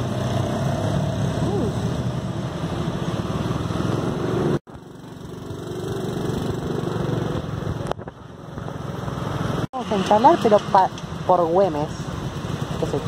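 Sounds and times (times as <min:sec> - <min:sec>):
motorcycle engine running: 0:04.0 - 0:13.0.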